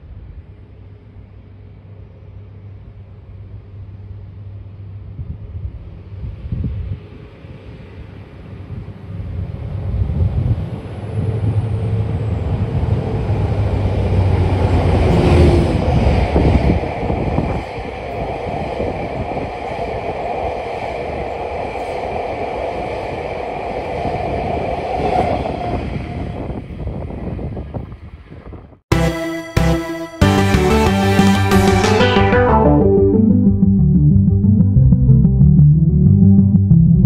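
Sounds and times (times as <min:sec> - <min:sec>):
diesel locomotive engine drone: 0:07.1 - 0:26.5.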